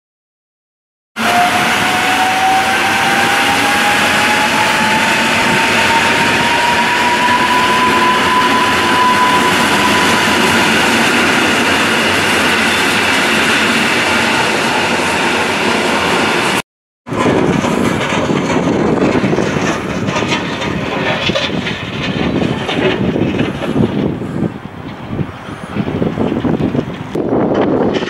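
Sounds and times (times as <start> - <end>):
electric train traction whine: 1.2 - 28.0
wheels on rails: 1.2 - 28.0.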